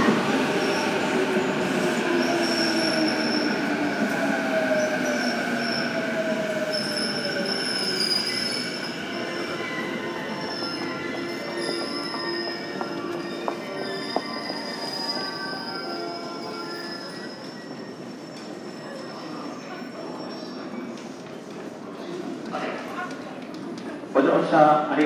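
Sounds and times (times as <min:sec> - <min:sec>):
high wheel and brake squeals: 0:06.7 - 0:20.7.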